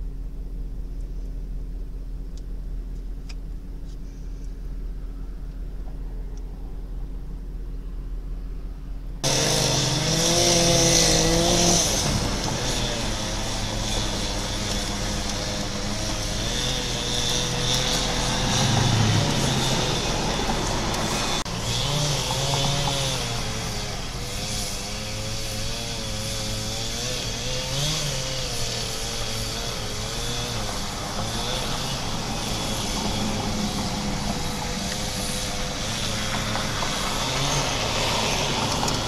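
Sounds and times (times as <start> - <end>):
chainsaw cutting wood: 9.2 - 39.0.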